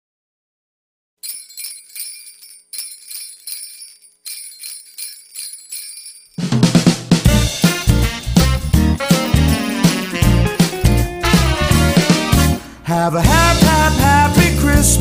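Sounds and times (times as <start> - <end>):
jingle bells shaken: 1.2 - 6.7, 7.4 - 11.8.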